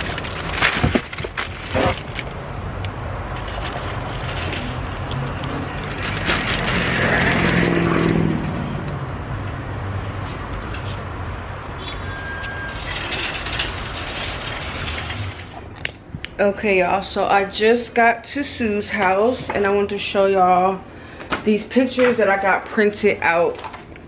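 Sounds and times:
plastic bags rustling: 0.0 - 8.3, 11.8 - 15.9
traffic hum: 0.0 - 24.0
vehicle engine passing: 2.2 - 15.8.

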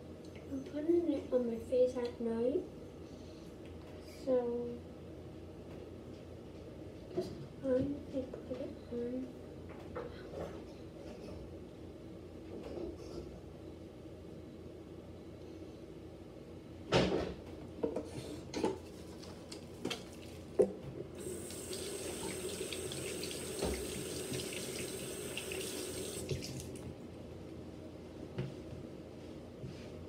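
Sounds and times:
tap running into sink: 21.2 - 26.7.

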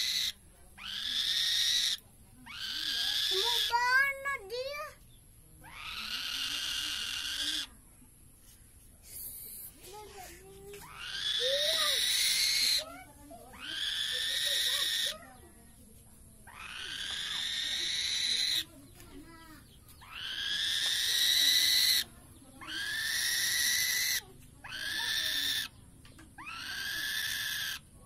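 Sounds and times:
young bird of prey screeching: 0.0 - 4.1, 5.6 - 7.7, 10.8 - 15.3, 16.4 - 18.7, 20.0 - 25.8, 26.4 - 27.9.

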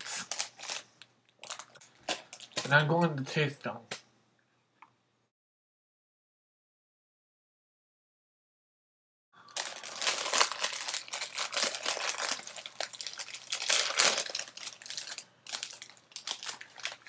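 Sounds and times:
foil wrapper crinkling and tearing: 0.0 - 2.8, 9.5 - 17.0.

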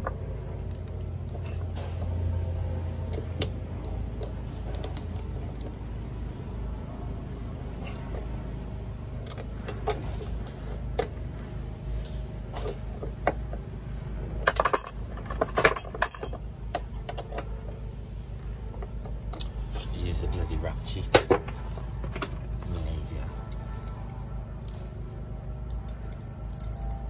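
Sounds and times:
low steady rumble: 0.0 - 27.0
spanners jangling metal clinks: 14.4 - 16.4.

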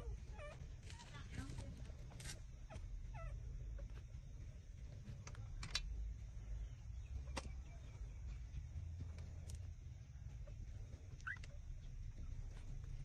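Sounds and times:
puppy squeak: 11.2 - 11.5.

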